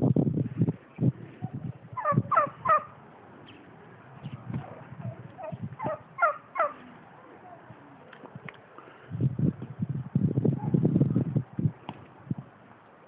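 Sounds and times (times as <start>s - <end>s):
turkey gobbling: 2.0s - 8.1s
dull low thumps: 9.1s - 12.5s.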